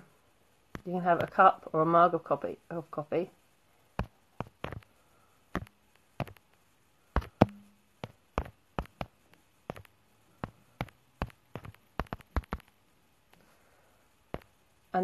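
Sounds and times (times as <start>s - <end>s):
typing on a keyboard: 9.7s - 9.9s, 10.8s - 12.7s.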